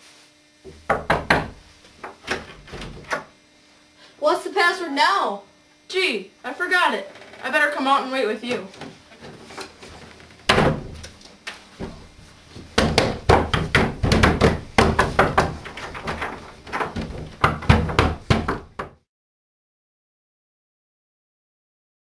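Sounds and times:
hands pounding on a door: 0.7s - 3.1s, 10.5s - 11.0s, 11.8s - 19.0s
door banging shut: 10.4s - 11.0s.

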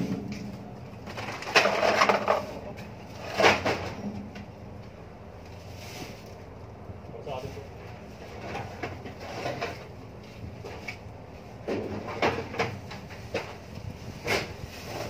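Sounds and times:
steady low hum: 0.0s - 15.0s
plastic garbage bags rustling: 5.5s - 6.7s.

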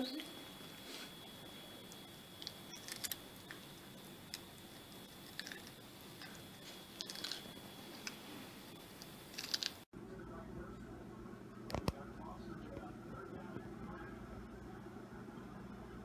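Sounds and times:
cat chewing crunches: 5.1s - 8.2s, 9.3s - 9.8s.

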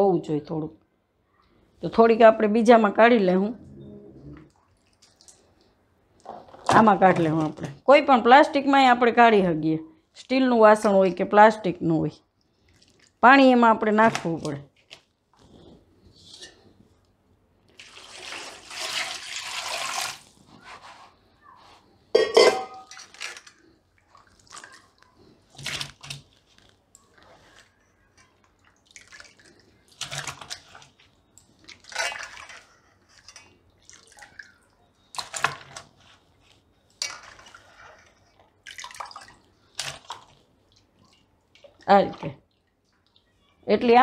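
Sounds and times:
water pouring: 17.7s - 20.4s, 31.6s - 35.8s, 37.0s - 42.7s
pot clinking: 22.1s - 23.1s
water splashing and dripping: 28.5s - 35.8s, 37.0s - 43.3s.

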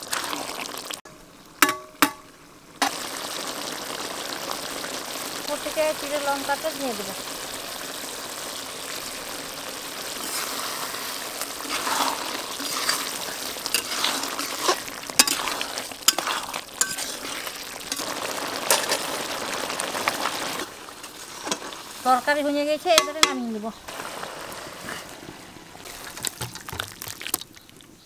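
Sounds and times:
curry sizzling in a pan: 0.0s - 28.0s
spatula scraping a pan: 10.1s - 19.2s, 20.6s - 22.2s.

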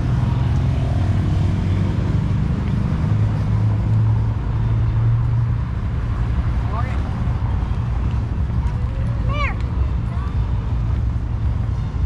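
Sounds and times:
traffic engines humming: 0.0s - 12.0s.

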